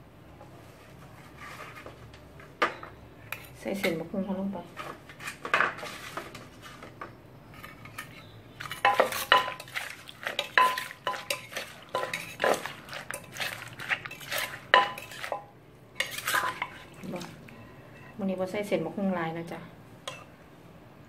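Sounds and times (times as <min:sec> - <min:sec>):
metal spoon clinking and scraping: 0:07.5 - 0:17.0.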